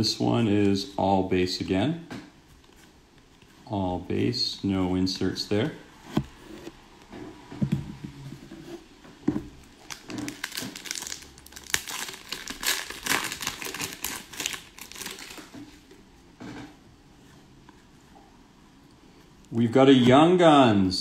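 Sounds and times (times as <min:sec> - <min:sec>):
soft knocks: 0:07.4 - 0:08.6
foil wrapper crinkling: 0:09.7 - 0:15.5.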